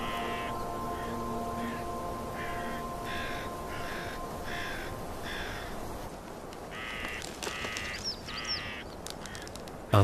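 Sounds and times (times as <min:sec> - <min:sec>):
crow cawing: 0:00.0 - 0:05.9, 0:06.7 - 0:09.5.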